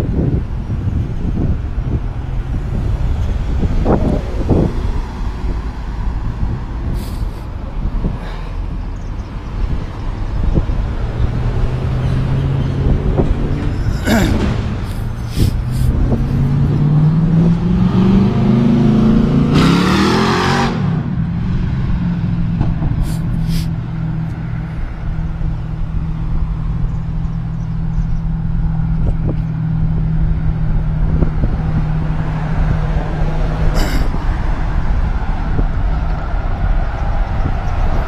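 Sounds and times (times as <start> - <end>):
wind noise: 0.0 - 38.0.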